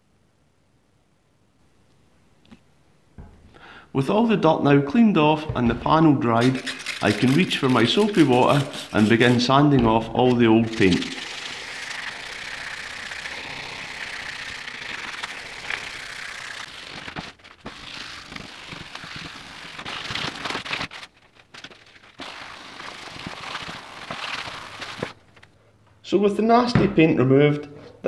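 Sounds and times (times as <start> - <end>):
sandpaper scrubbing vinyl: 6.3 - 25.2.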